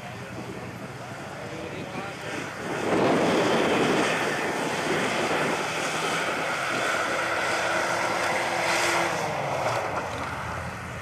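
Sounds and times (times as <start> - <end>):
wind noise on microphone: 1.6 - 7.4.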